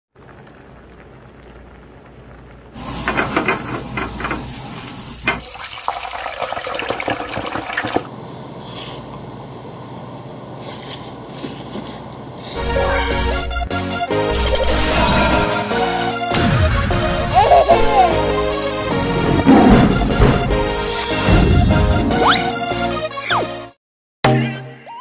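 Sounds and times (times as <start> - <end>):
prawns sizzling in hot oil: 2.4 - 6.4
steady hiss: 2.7 - 5.4.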